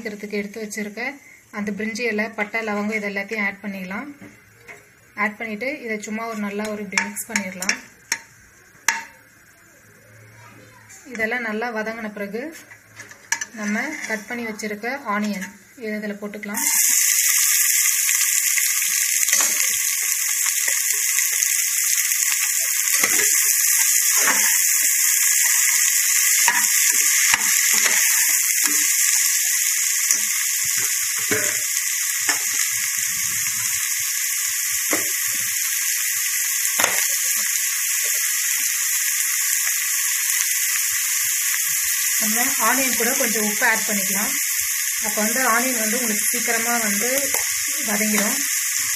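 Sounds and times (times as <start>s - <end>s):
onions sizzling in oil: 0.0s - 48.9s
metal spoon scraping pot: 13.0s - 14.4s.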